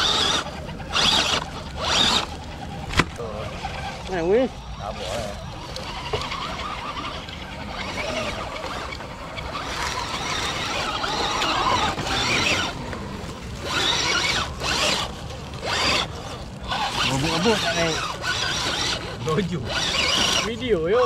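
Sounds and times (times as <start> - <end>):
small electric motors whining: 0.0 - 21.0
dry leaves crackling: 4.9 - 20.9.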